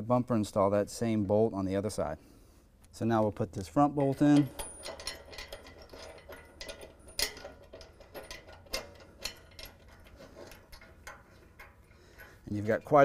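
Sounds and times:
metal bolt clicks and ticks: 0:02.8 - 0:13.0.

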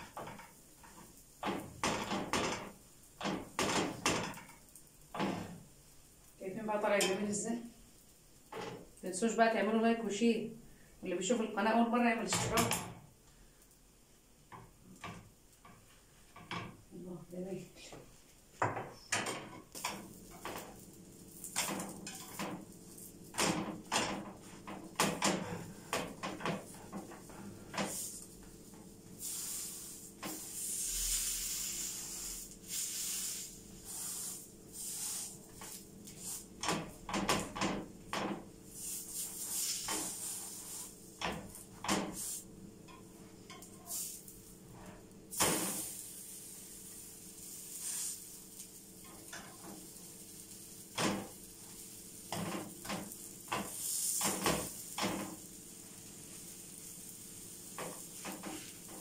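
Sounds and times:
bread frying in a pan: 0:00.0 - 0:59.0
metal spatula scraping a pan: 0:19.2 - 0:28.3, 0:38.8 - 0:48.4, 0:49.0 - 0:50.1.

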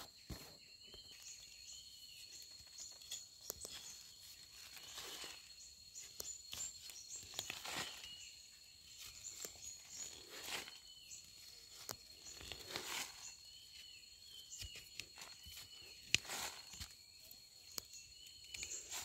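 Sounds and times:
footsteps rustling dry leaves: 0:03.7 - 0:05.5, 0:06.7 - 0:08.3, 0:11.4 - 0:13.4, 0:15.0 - 0:16.9.

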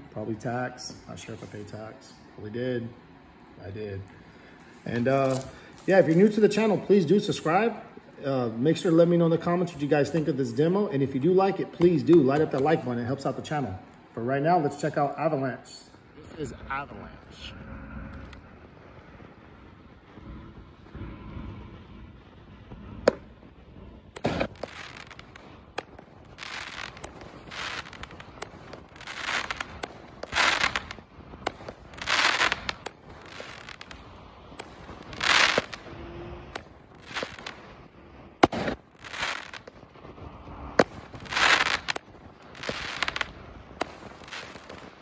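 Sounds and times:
crackling firework bursts: 0:00.0 - 0:45.0
firework launch bangs: 0:20.0 - 0:45.0.

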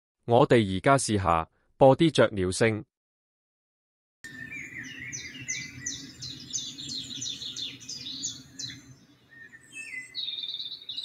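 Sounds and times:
bird chirping: 0:04.3 - 0:11.0.

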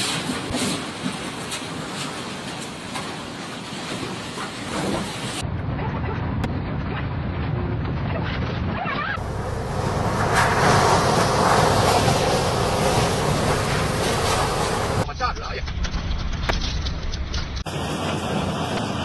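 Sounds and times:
wind buffeting microphone: 0:03.9 - 0:15.1.

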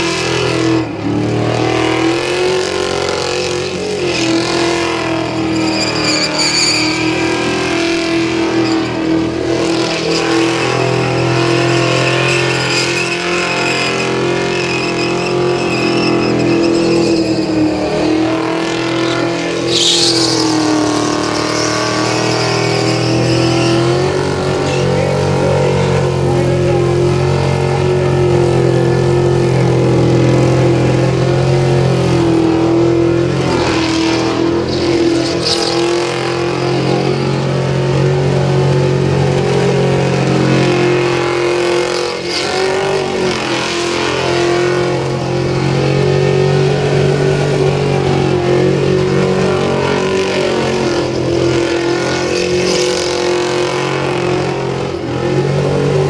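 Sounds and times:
car engine revving high: 0:00.0 - 0:56.0
tyres screeching: 0:01.7 - 0:26.8, 0:33.4 - 0:37.6, 0:48.5 - 0:55.4.

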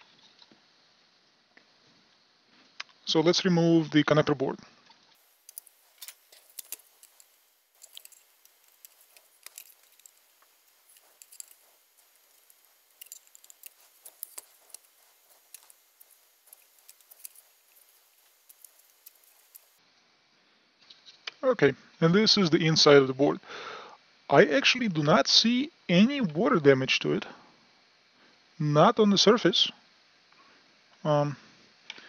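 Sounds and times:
faint clicks and light knocks: 0:05.2 - 0:19.8.

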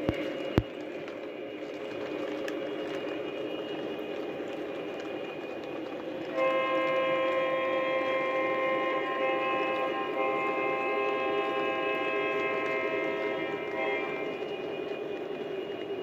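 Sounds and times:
model train cars rolling: 0:00.0 - 0:16.0
model train horn chord: 0:06.3 - 0:15.0.

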